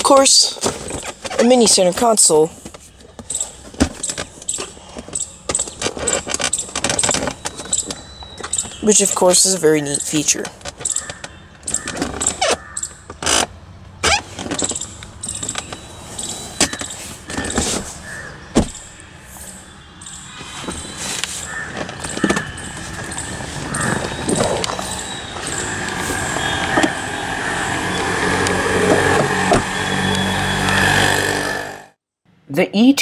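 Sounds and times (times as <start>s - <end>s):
outdoor background: 0.0s - 33.0s
rustling of person climbing out: 10.4s - 19.6s, 20.3s - 27.0s
car door clicks and knocks: 18.5s - 18.9s.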